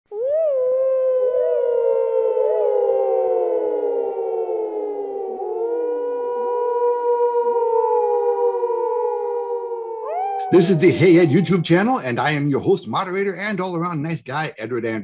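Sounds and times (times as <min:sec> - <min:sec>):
dogs howling: 0:00.1 - 0:11.9.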